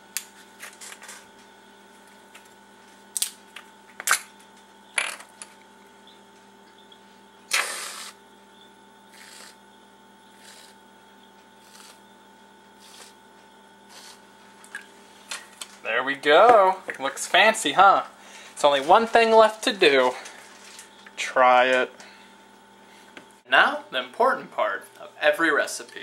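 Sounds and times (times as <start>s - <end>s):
whipped cream can hissing: 7.5s - 8.2s, 9.1s - 9.6s, 10.3s - 10.8s, 11.6s - 12.1s, 12.8s - 13.2s, 13.9s - 14.3s.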